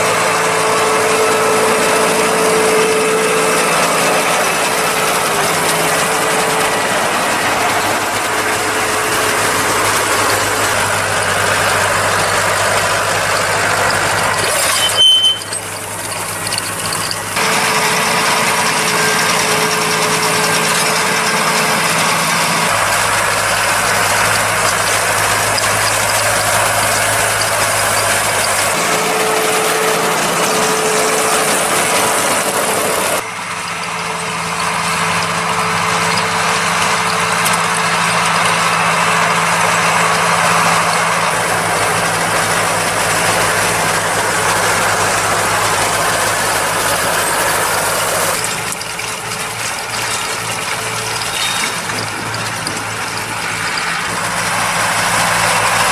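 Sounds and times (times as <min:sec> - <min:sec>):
hay machinery working: 0:00.0 - 0:55.9
tractor diesel engines running: 0:00.0 - 0:55.9.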